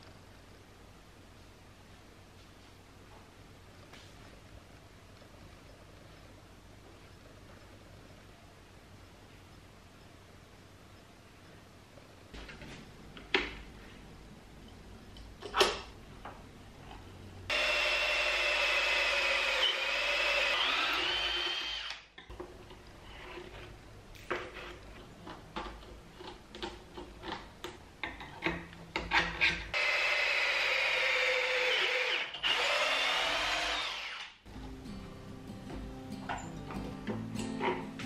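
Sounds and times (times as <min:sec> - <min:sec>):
cordless drill whining into wood: 0:17.5 - 0:22.1, 0:29.8 - 0:34.4.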